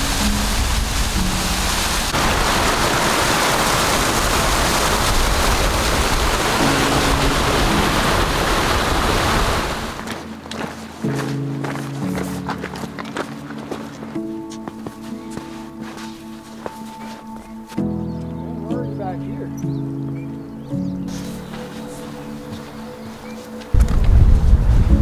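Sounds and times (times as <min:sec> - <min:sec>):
soft background music: 0:00.0 - 0:02.2, 0:05.9 - 0:25.0
waterfall rushing: 0:00.0 - 0:10.8
footsteps on gravel: 0:10.0 - 0:18.2, 0:21.1 - 0:23.8.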